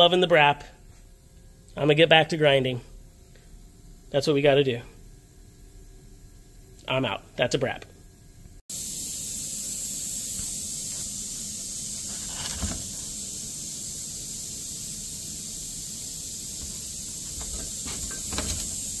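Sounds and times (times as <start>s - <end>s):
steady hiss: 8.6s - 19.0s.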